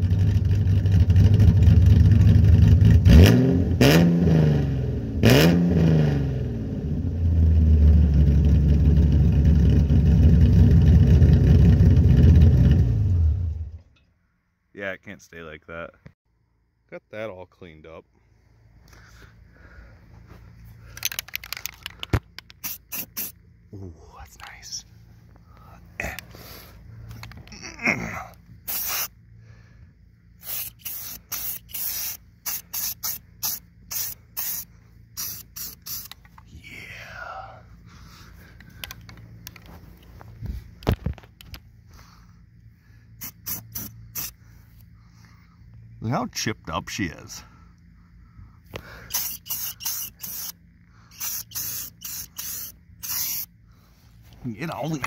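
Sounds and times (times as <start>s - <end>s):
aerosol spray can bursts: 22.5s - 23.4s, 28.7s - 29.1s, 30.4s - 36.2s, 43.2s - 44.4s, 49.1s - 53.5s.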